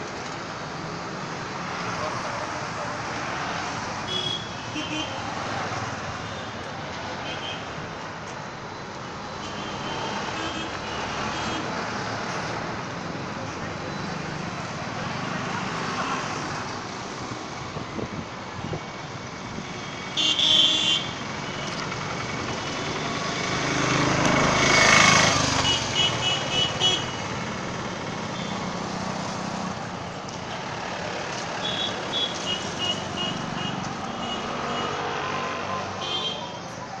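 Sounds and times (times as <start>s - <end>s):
busy street traffic: 0.0s - 37.0s
vehicle horns honking: 4.1s - 5.2s, 20.2s - 21.2s, 25.6s - 27.2s, 31.6s - 36.6s.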